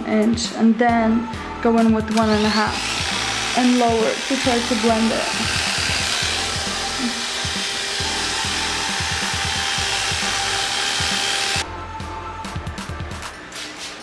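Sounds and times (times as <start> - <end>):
electric hair clippers: 2.2 - 11.6
background music with a beat: 5.4 - 14.0.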